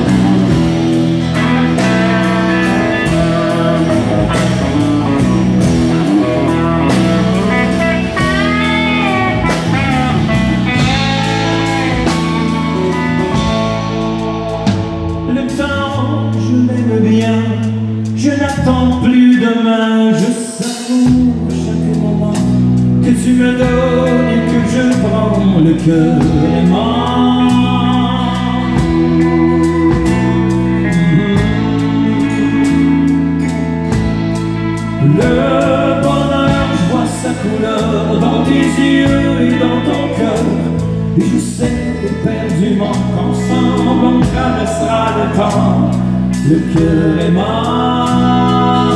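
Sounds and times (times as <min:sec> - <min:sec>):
man singing into a microphone: 0:00.0 - 0:12.2, 0:15.1 - 0:34.0, 0:34.8 - 0:48.9
steady beat: 0:00.0 - 0:15.3
bass notes: 0:00.0 - 0:20.3, 0:20.9 - 0:48.9
acoustic guitar: 0:00.0 - 0:48.9.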